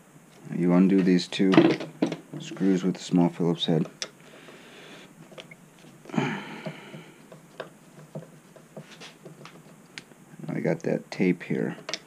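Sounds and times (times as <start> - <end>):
handling noises: 0.3 - 10.2.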